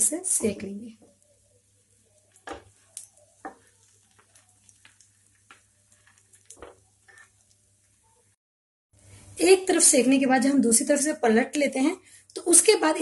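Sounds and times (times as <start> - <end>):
sandwich sizzling in a pan: 1.0 - 8.2
spatula knocking on pan: 3.4 - 3.7.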